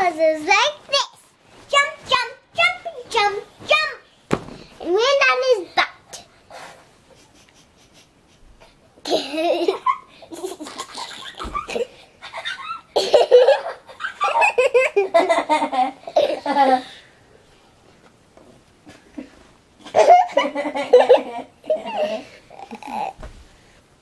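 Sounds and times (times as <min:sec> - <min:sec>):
girl giggling: 0:09.0 - 0:16.9, 0:19.2 - 0:23.1.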